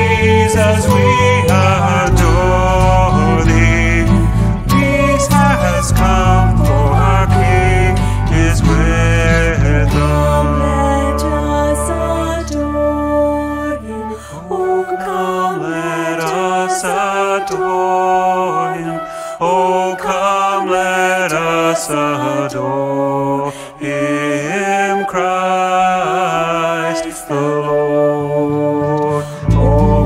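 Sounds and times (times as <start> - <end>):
electric bass guitar: 0.0 - 13.6, 29.4 - 30.0
woman singing: 0.0 - 19.0
acoustic guitar: 0.0 - 20.2, 24.4 - 30.0
flute: 0.0 - 30.0.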